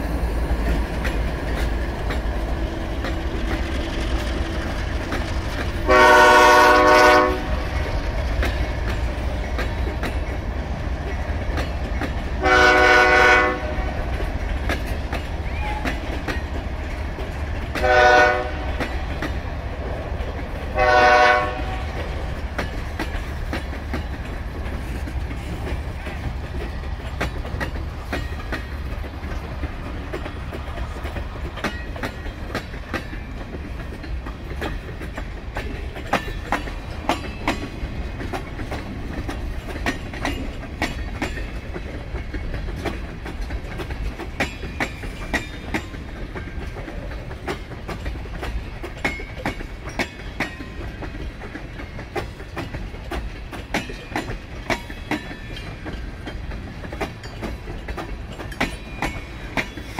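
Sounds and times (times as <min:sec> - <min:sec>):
freight cars rumbling and clacking: 0:00.0 - 0:59.9
locomotive horn blasts: 0:05.8 - 0:07.6, 0:12.4 - 0:14.0, 0:17.8 - 0:18.8, 0:20.8 - 0:21.9.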